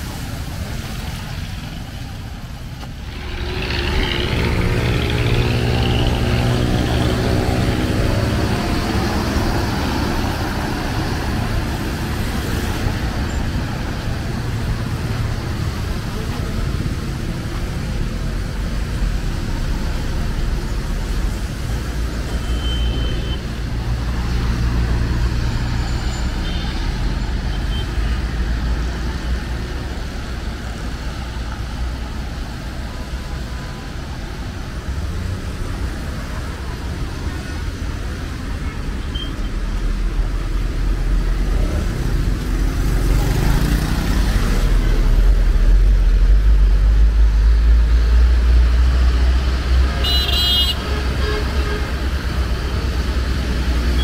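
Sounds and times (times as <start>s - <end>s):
street traffic rumbling: 0.0s - 54.0s
vehicle passing close by: 2.9s - 13.7s.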